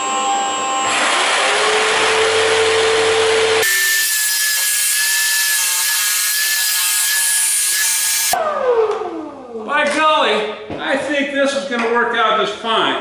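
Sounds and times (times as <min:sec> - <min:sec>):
jigsaw cutting plywood: 0:00.8 - 0:08.4.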